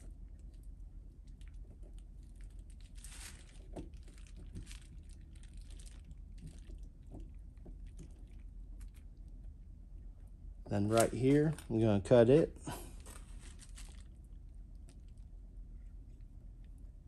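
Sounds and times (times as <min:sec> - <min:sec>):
tape crinkling and clicking: 0:00.0 - 0:09.6, 0:10.6 - 0:15.3
low steady hum: 0:00.0 - 0:17.0.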